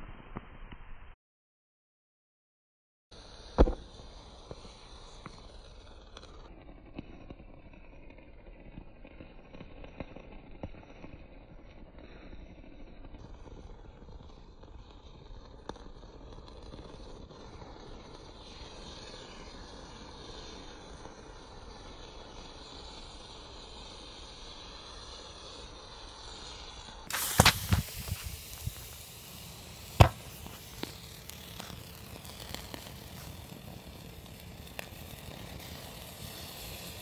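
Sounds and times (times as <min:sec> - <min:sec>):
burning metal fizzing: 0:27.0 - 0:37.0
sharp pops and cracks: 0:27.1 - 0:37.0.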